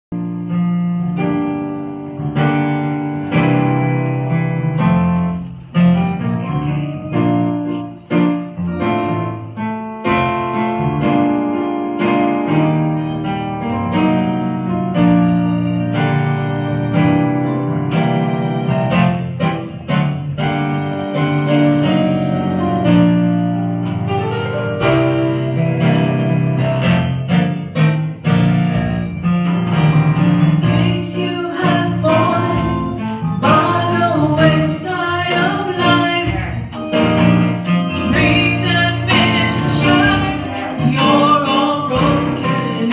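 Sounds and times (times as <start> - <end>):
keyboard chords: 0.1 - 42.9
women singing into microphones: 38.2 - 42.9.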